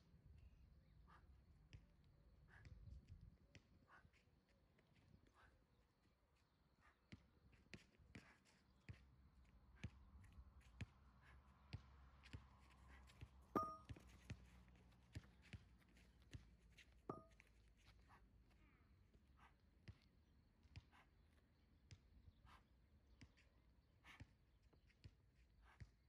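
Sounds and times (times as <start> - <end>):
faint taps and knocks: 13.2 - 17.6
dumbbell plates clinking: 13.6 - 14.0, 17.1 - 17.4.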